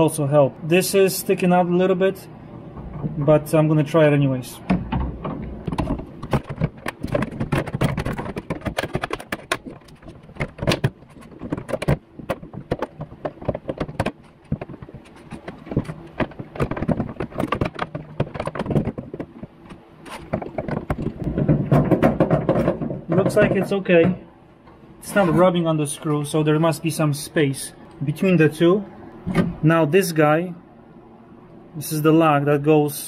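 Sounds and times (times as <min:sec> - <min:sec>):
car door parts clicking and rattling: 0:04.7 - 0:24.0.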